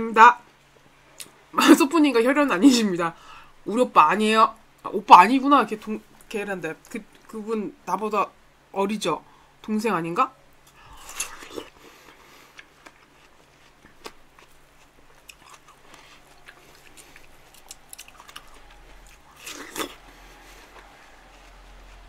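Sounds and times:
biting and chewing watermelon: 10.7 - 22.0.

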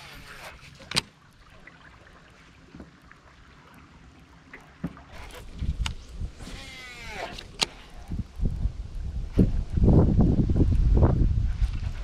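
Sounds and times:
clicks and knocks of rod handling: 0.6 - 1.2.

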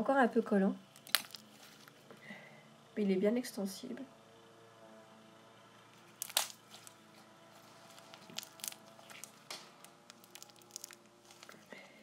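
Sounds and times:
slime squishing and popping: 1.0 - 1.5, 6.2 - 6.9, 8.0 - 11.6.

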